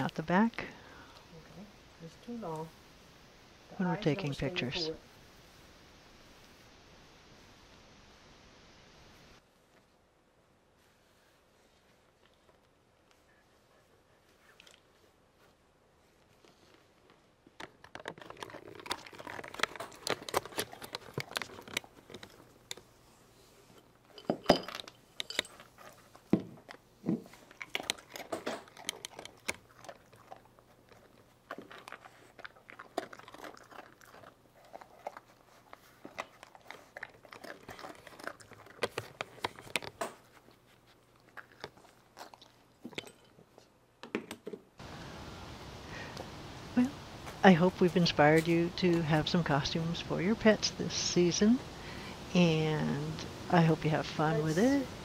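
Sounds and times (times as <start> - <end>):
dog crunching treats: 16.5 - 23.0, 24.0 - 43.7.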